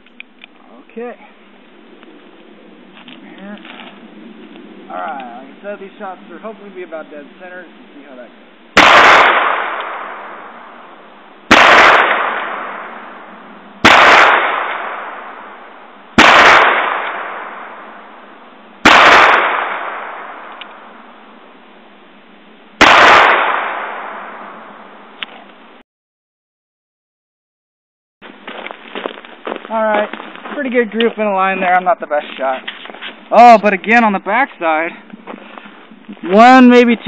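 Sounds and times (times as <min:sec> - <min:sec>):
revolver shots echoing: 0:08.8 - 0:10.9, 0:11.5 - 0:13.2, 0:16.2 - 0:17.9, 0:18.8 - 0:20.8, 0:22.8 - 0:24.7.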